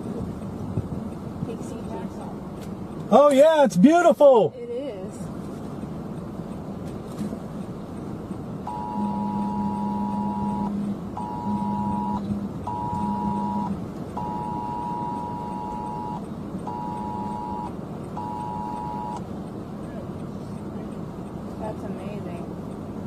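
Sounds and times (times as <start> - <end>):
vehicle noise: 0.0 - 23.0
phone vibration buzzing: 8.7 - 19.2
two-tone phone alert signal: 8.7 - 19.2.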